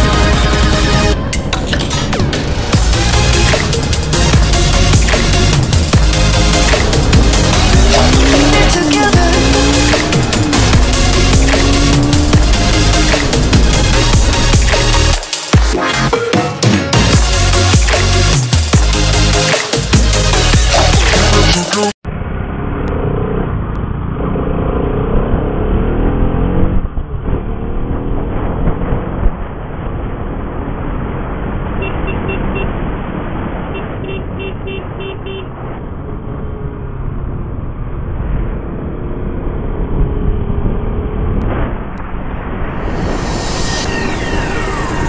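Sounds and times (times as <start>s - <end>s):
motorcycle engine accelerating: 2.2s - 15.3s, 22.0s - 31.0s.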